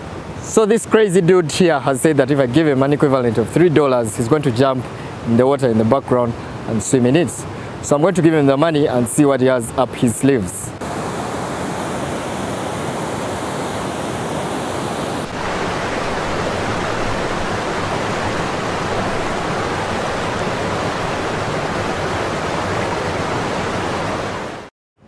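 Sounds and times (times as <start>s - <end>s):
whitewater rapids roaring: 10.8s - 24.6s.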